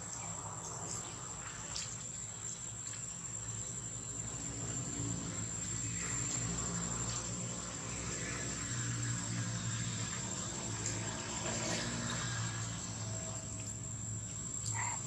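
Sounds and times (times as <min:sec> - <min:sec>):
high-pitched insect drone: 0:03.9 - 0:15.0.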